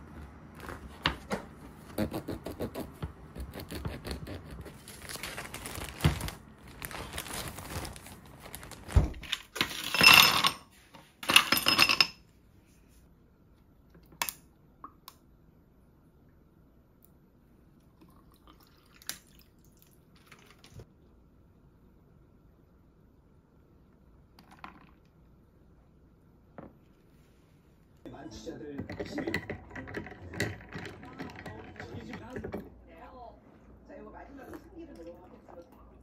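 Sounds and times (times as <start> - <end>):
plastic bag crinkling: 4.8 - 9.6.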